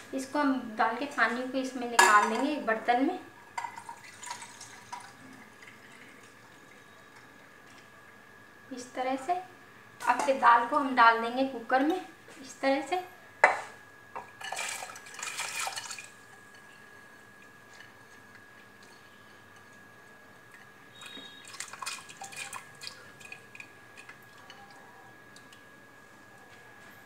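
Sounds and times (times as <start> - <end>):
wet lentils pattering into water: 21.0 - 24.4.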